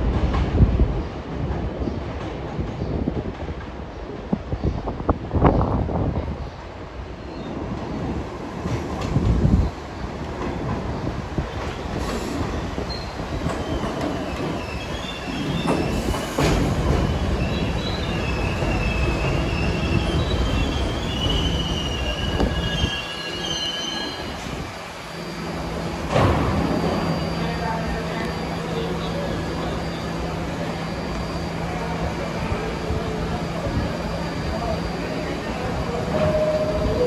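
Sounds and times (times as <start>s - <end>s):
subway train rumbling on rails: 0.0s - 37.0s
steel wheels squealing: 12.0s - 24.6s.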